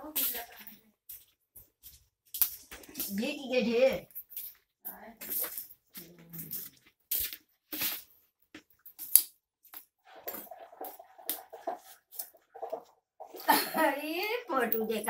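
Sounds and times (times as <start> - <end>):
dry twigs snapping and crackling: 2.3 - 3.2, 8.9 - 9.4.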